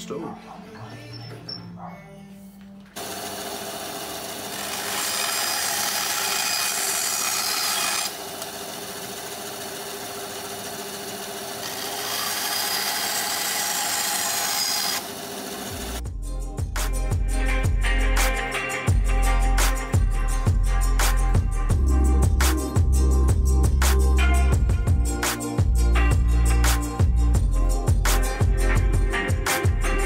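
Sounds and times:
bandsaw cutting wood: 0:03.0 - 0:16.0.

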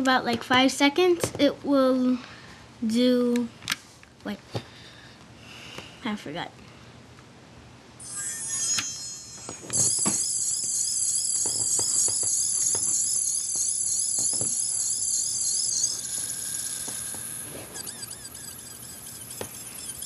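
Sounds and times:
toy warbling electronic sound: 0:08.0 - 0:20.0.

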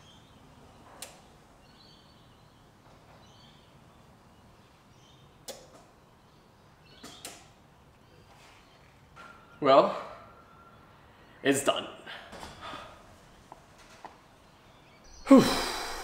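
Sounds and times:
sharp clicks: 0:01.0 - 0:01.2, 0:05.4 - 0:05.9, 0:07.0 - 0:07.5.

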